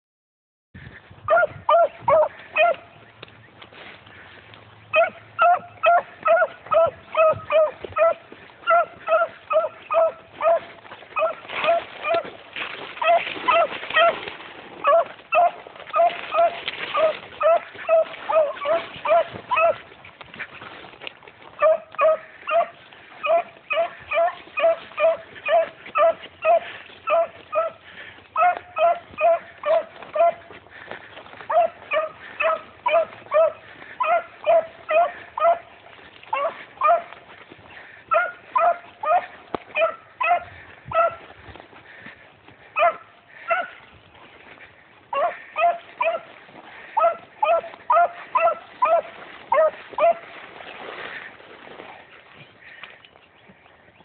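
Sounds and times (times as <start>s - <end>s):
dog barking: 1.3s - 2.9s, 4.9s - 12.3s, 13.0s - 14.2s, 14.8s - 19.8s, 21.6s - 27.8s, 28.4s - 30.4s, 31.5s - 35.7s, 36.3s - 37.1s, 38.1s - 41.2s, 42.8s - 43.8s, 45.1s - 46.3s, 47.0s - 50.2s.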